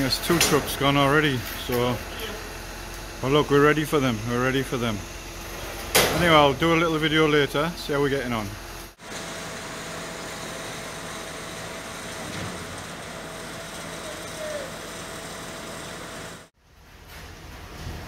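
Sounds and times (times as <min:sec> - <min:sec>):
concrete pump droning with hiss: 0:08.3 - 0:16.6.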